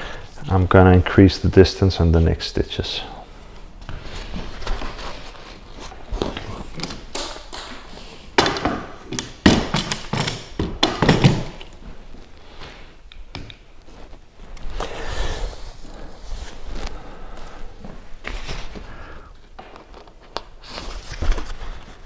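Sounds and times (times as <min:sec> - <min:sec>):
fabric rustling and scraping: 0:03.4 - 0:06.8, 0:13.7 - 0:18.9.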